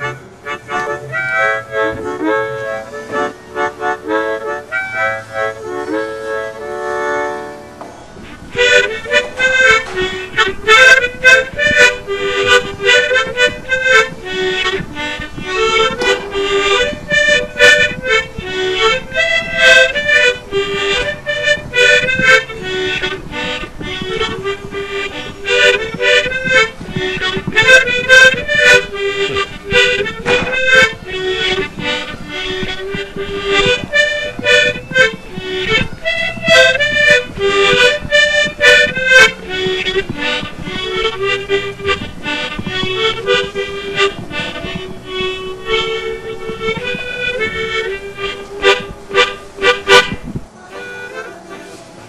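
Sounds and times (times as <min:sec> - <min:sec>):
background music with melody: 0:00.0 - 0:52.0.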